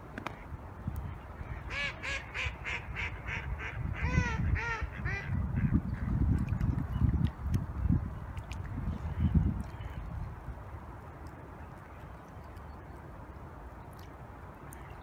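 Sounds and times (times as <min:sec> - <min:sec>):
waterfowl calling: 0:01.5 - 0:05.8.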